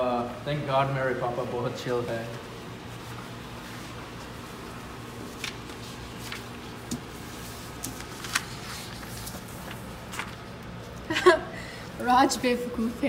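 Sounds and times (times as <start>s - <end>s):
low room hum: 0.0s - 13.0s
paper rustling: 2.2s - 11.1s.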